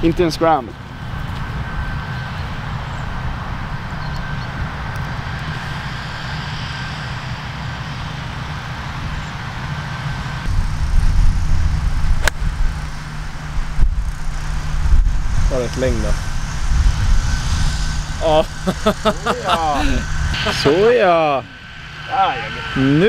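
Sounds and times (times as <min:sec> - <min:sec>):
low mechanical rumble: 0:00.0 - 0:23.0
golf club striking ball: 0:12.2 - 0:12.4.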